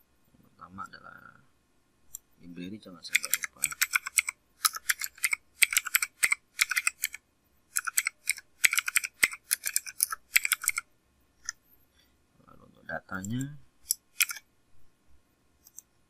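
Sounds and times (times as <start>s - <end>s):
keyboard typing clicks: 3.1s - 7.2s, 7.8s - 10.8s, 13.2s - 14.4s.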